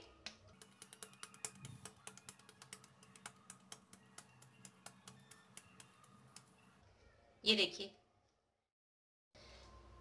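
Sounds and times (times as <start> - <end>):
hands patting dough: 0.3 - 6.7.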